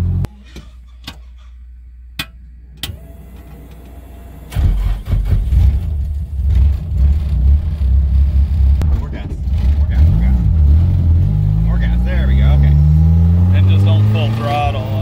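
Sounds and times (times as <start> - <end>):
car engine starting and rumbling: 0.0 - 15.0.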